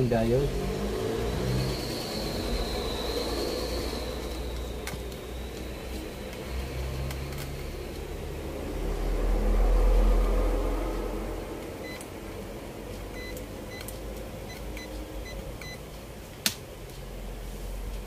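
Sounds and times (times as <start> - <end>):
low rumble: 0.5 - 13.7
multimeter beeps: 11.8 - 12.0, 13.1 - 15.8.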